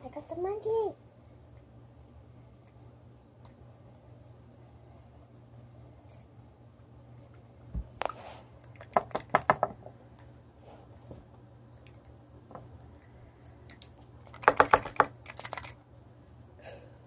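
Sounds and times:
plastic toys clicking and tapping: 8.7s - 9.8s, 13.7s - 15.8s.

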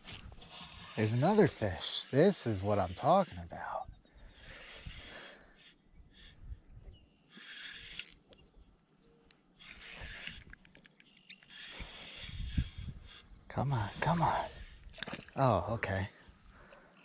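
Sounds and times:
fishing reel cranking: 7.4s - 8.4s, 9.6s - 12.8s.

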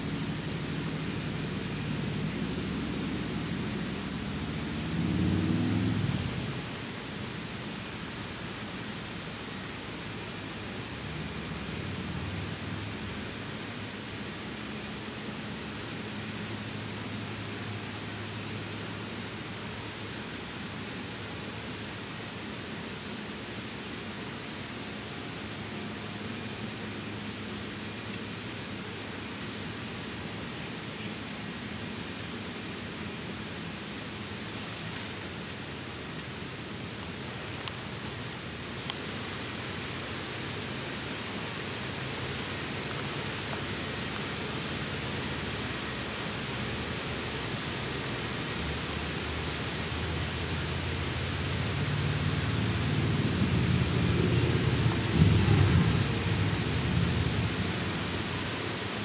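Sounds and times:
waterfall hissing: 0.0s - 59.0s
low rumble: 52.8s - 58.3s.

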